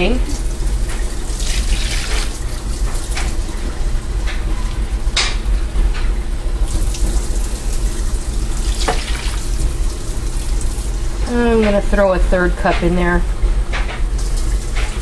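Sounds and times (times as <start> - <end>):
steady low hum: 0.0 - 15.0
water pouring and splashing: 0.2 - 3.6, 6.6 - 11.2, 14.1 - 15.0.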